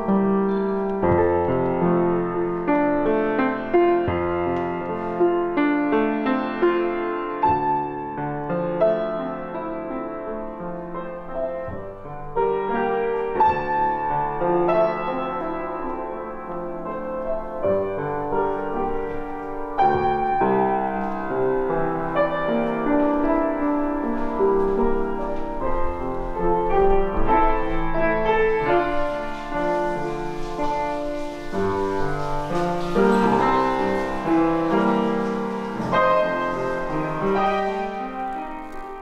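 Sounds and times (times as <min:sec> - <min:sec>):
solo piano music: 0:00.0 - 0:39.0.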